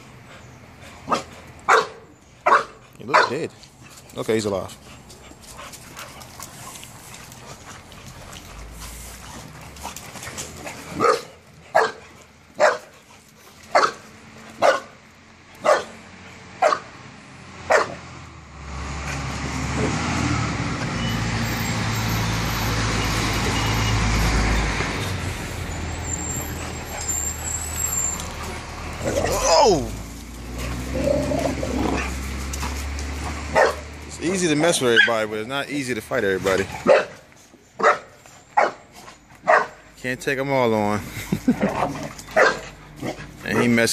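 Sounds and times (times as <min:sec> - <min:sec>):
dog barking: 0:01.1 - 0:03.4, 0:11.0 - 0:12.0, 0:12.6 - 0:12.9, 0:13.7 - 0:14.0, 0:14.6 - 0:15.0, 0:15.6 - 0:16.0, 0:16.6 - 0:16.9, 0:17.7 - 0:18.0, 0:33.5 - 0:33.9, 0:36.8 - 0:37.2, 0:37.8 - 0:38.8, 0:39.4 - 0:39.8, 0:42.4 - 0:42.6.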